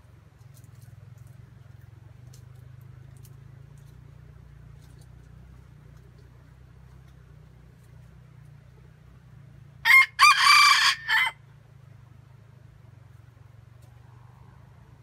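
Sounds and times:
rooster crowing: 9.8 - 11.4.

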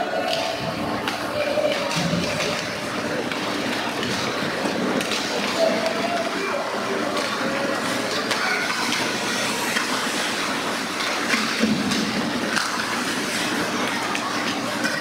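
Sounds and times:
hockey sticks and puck clacking: 0.2 - 15.0
skate blades scraping ice: 7.0 - 15.0.

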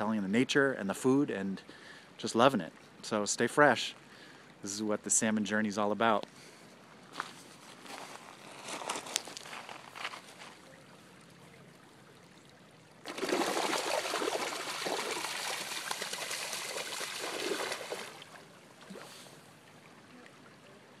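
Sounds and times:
stream trickling: 0.0 - 21.0
fish splashing in water: 13.0 - 19.4.

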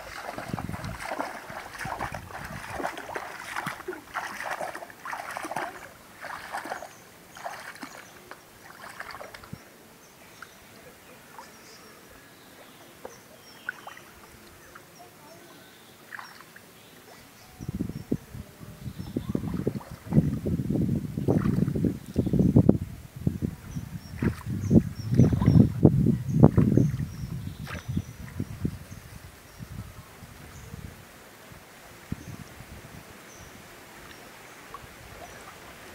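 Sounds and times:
water trickles and drips: 0.0 - 9.6, 12.6 - 15.4, 16.1 - 16.7, 19.0 - 20.5, 33.3 - 35.9
legs wading through water: 0.0 - 9.7, 12.4 - 17.1, 18.9 - 20.4, 21.2 - 22.3, 24.0 - 25.8, 26.4 - 29.6, 33.2 - 35.9.

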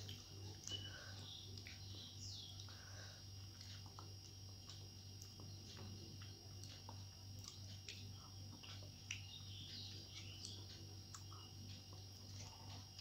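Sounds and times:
soft eating sounds: 0.0 - 13.0
steady low hum: 0.0 - 13.0
faint bird chirps: 0.5 - 3.2, 8.1 - 12.8.

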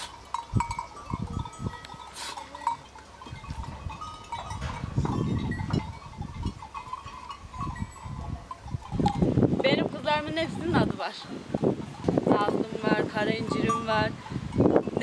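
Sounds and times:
small bells tinkling: 0.0 - 9.4, 13.2 - 15.0.

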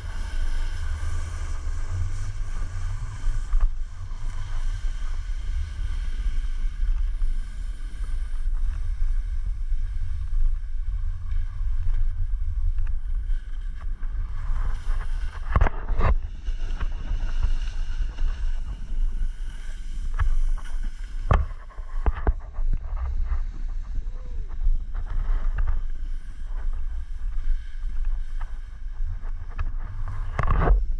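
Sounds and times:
wind rumbling on microphone: 0.0 - 30.9
skis hissing on snow: 12.6 - 15.5, 16.2 - 22.0, 23.1 - 29.1.

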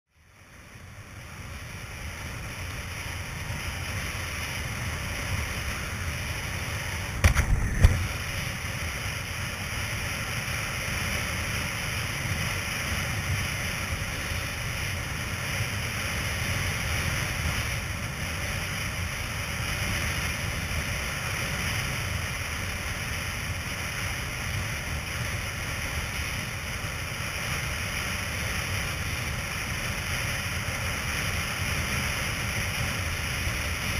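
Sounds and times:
rushing water and spray: 0.3 - 33.9
wind buffeting microphone: 5.0 - 9.3.

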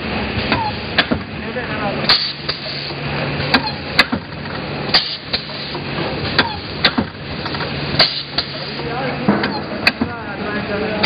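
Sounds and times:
packaging machine hum: 0.0 - 11.0
mechanical clacks: 2.1 - 10.2.

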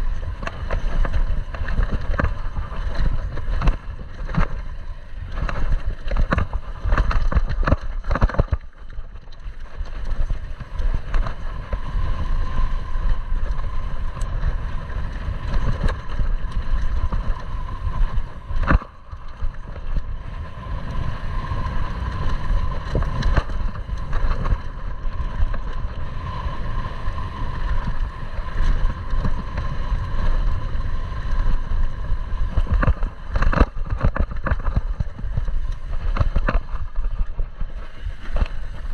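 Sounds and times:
bike knocks and rattles: 0.0 - 12.0, 32.4 - 38.9
bike tyre noise on dirt: 0.0 - 38.9
high whirring tone: 0.0 - 38.9
wind rumble on microphone: 0.0 - 38.9.

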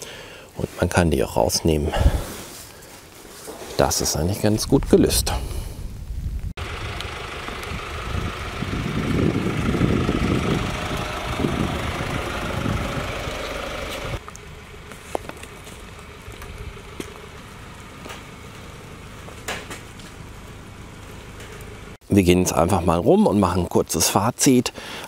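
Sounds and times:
diesel van driving past: 6.6 - 22.0.

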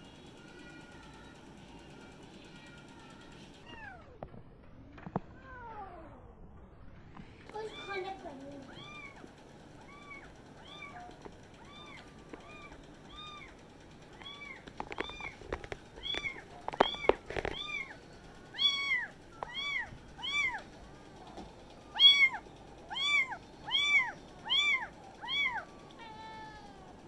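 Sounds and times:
kittens meowing: 8.7 - 13.6, 14.2 - 21.3, 21.9 - 27.0.

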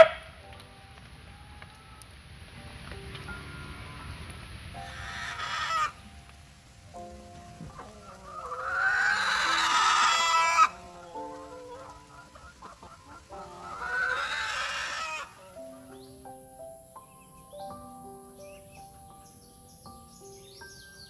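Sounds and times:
background music with held notes: 0.0 - 21.0
rooster crowing: 4.9 - 6.0, 7.8 - 12.4, 13.2 - 15.9.

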